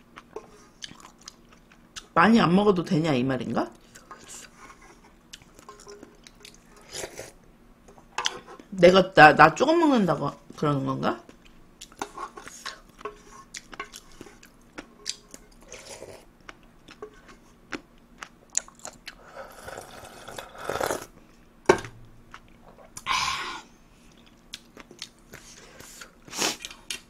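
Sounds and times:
slurping broth: 0:06.6 - 0:07.4, 0:15.6 - 0:16.3, 0:19.1 - 0:21.1
wet chewing: 0:11.3 - 0:19.2.

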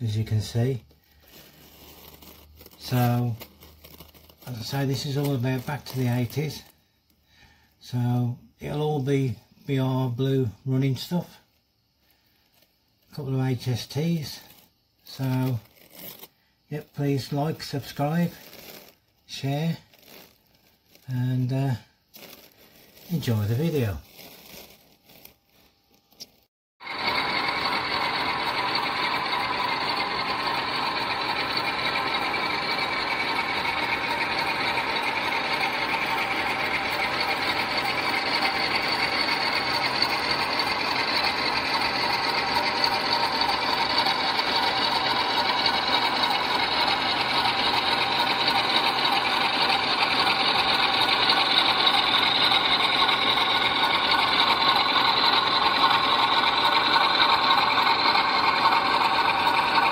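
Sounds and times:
model train whirring on track: 0:01.3 - 0:06.7, 0:13.2 - 0:15.6, 0:26.8 - 0:59.9.

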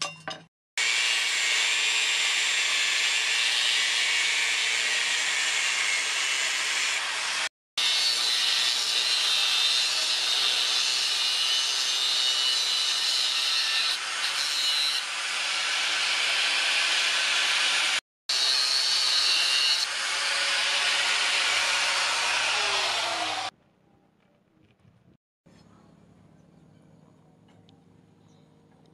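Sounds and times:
angle grinder cutting steel: 0:00.8 - 0:23.5.

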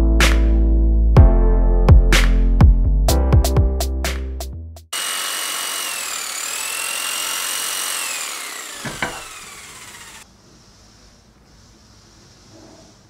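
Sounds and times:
power tool motor whining: 0:05.0 - 0:10.2
hiss: 0:09.5 - 0:13.0.

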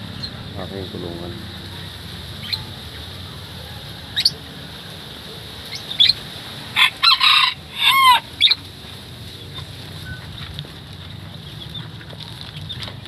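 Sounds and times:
high bird chirps: 0:00.0 - 0:00.4, 0:05.7 - 0:06.2
rooster crowing: 0:03.6 - 0:04.8, 0:06.7 - 0:08.6.

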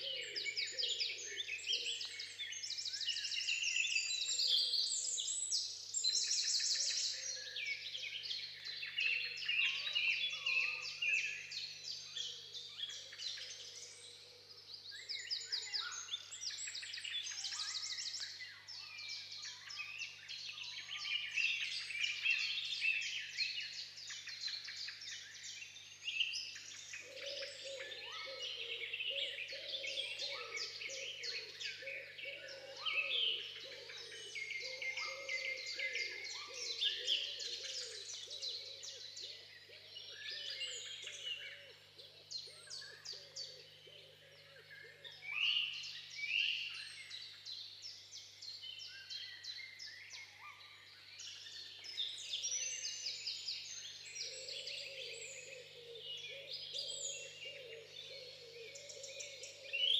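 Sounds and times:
songbirds chirping and trilling: 0:00.0 - 0:59.9
lower wavering bird calls: 0:26.8 - 0:47.4, 0:51.4 - 0:59.9.

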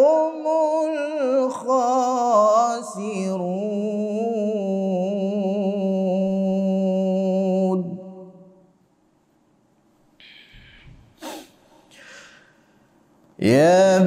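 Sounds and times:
man reciting melodically: 0:00.0 - 0:08.4, 0:13.4 - 0:14.0.

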